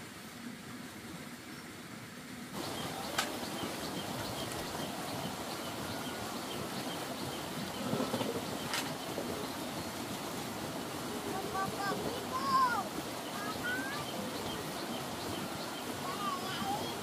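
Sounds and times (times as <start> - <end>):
bird or insect chirping: 2.6 - 10.0
steady rushing noise: 2.6 - 17.0.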